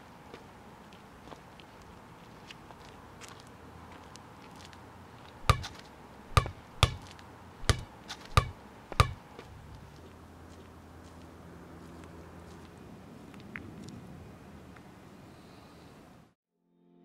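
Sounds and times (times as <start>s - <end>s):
sneaker footsteps on concrete: 0.3s - 12.8s.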